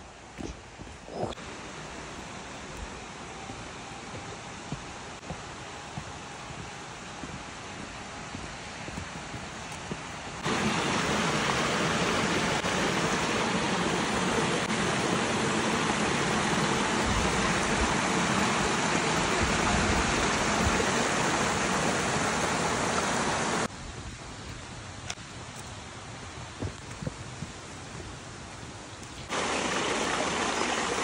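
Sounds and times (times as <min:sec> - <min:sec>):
stream rushing over rocks: 0:01.4 - 0:23.7, 0:29.3 - 0:31.0.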